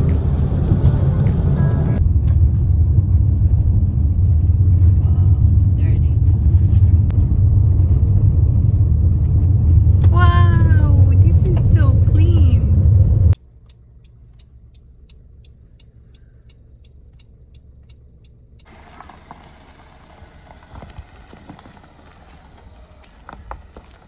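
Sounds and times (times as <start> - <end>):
car road rumble: 0.0 - 24.0
faint ticking: 13.3 - 18.8
soft bumps: 18.7 - 24.0.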